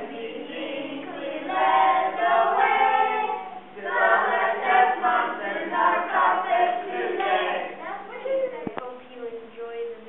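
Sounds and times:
children and adults singing: 0.0s - 7.8s.

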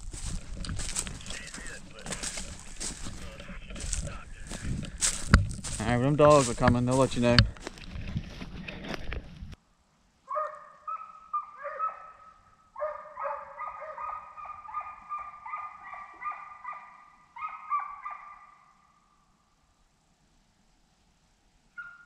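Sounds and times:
hounds baying: 0.2s - 5.2s, 10.3s - 18.8s, 21.8s - 22.0s.

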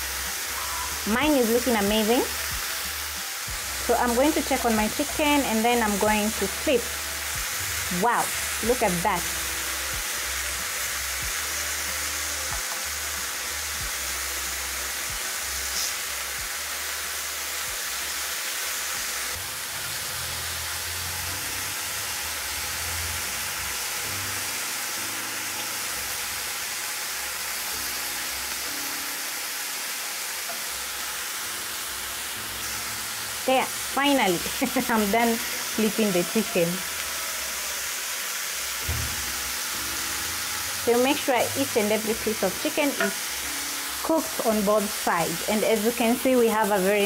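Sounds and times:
chicken sizzling in a grill pan: 0.0s - 47.0s.

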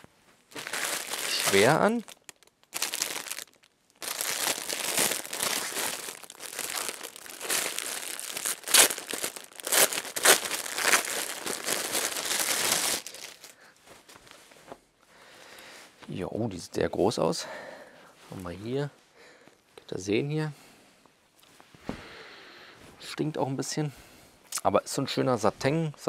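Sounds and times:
plastic bag crinkling: 0.5s - 13.7s.

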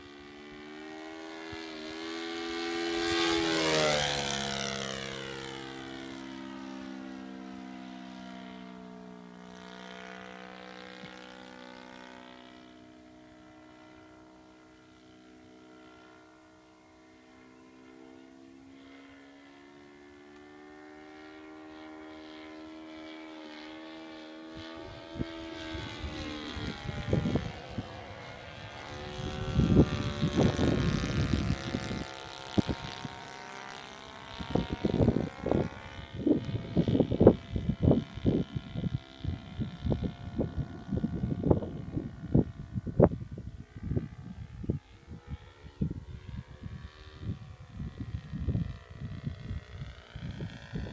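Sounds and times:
model plane engine drone: 0.0s - 50.9s
wind buffeting microphone: 24.5s - 50.9s.

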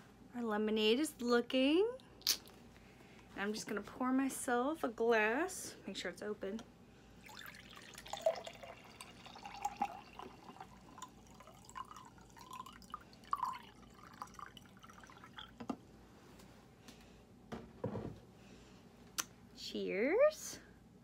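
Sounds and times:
liquid pouring into a glass: 7.2s - 15.7s.

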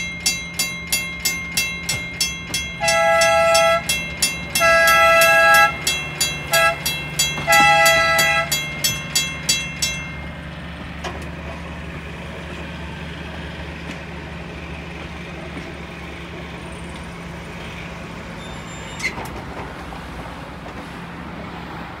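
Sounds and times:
crossing bell ringing: 0.0s - 12.5s
trolley car horn: 1.2s - 10.5s.

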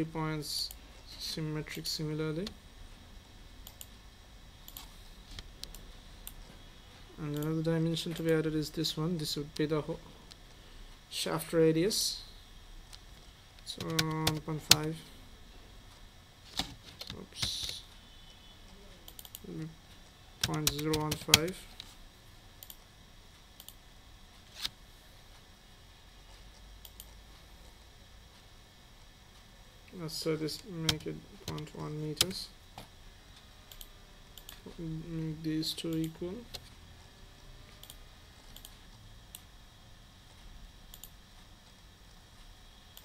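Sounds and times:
faint low hum: 0.0s - 43.0s
faint room hiss: 0.0s - 43.0s
computer mouse clicking: 3.6s - 3.9s, 4.6s - 6.4s, 7.3s - 8.4s, 13.7s - 14.9s, 19.1s - 19.5s, 20.4s - 21.9s, 22.6s - 22.8s, 23.6s - 23.8s, 26.8s - 27.2s, 33.7s - 34.7s, 37.8s - 39.5s, 40.9s - 41.2s.

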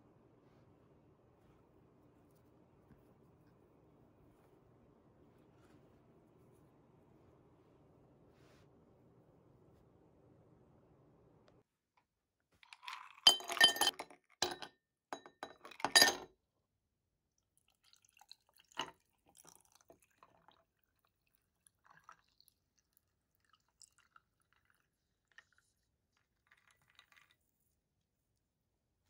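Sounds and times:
ice cubes clinking in glass: 12.7s - 16.2s.

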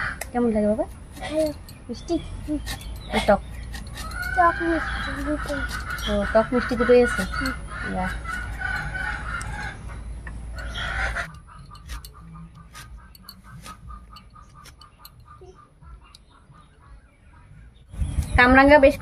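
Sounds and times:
chicken clucking: 1.5s - 17.7s.

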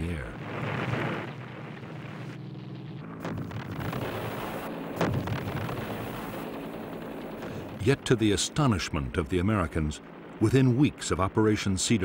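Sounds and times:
sharp explosion bangs: 3.2s - 6.2s
low explosion rumble: 3.2s - 6.4s.

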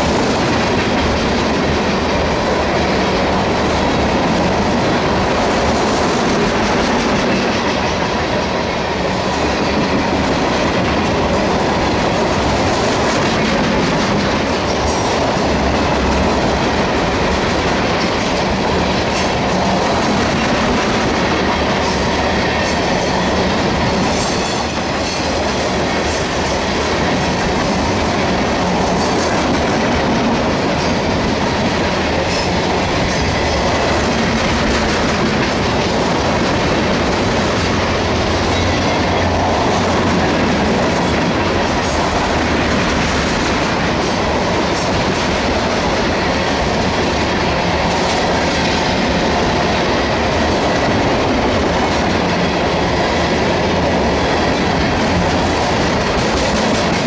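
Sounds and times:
freight train rumbling past: 0.0s - 57.0s
wheels clacking over rail joints: 0.0s - 57.0s.

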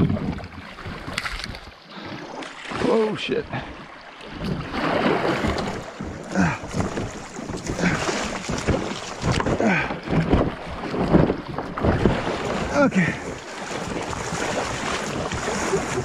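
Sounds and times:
wind on microphone: 0.0s - 1.8s, 4.3s - 16.0s
paddle splashes: 0.0s - 16.0s
river water rushing and splashing: 0.0s - 16.0s
knocks against kayak hull: 4.4s - 12.7s.

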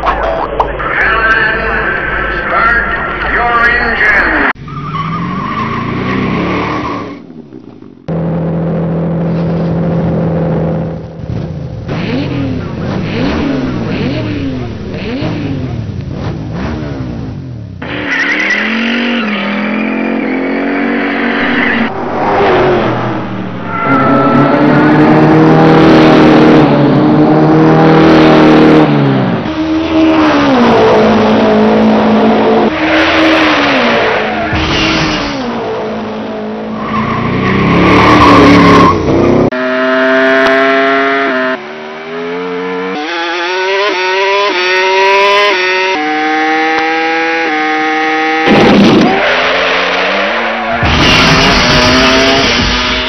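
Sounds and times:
racing car engine revving: 1.0s - 53.0s
tyre squeal: 23.6s - 25.5s.

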